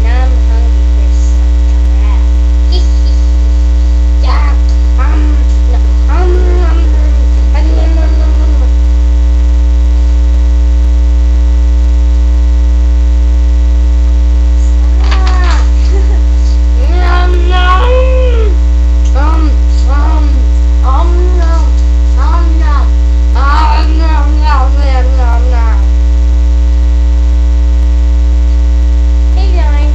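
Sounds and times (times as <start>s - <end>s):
electrical mains hum: 0.0s - 29.9s
girl vocalizing: 4.2s - 8.8s, 14.7s - 25.9s.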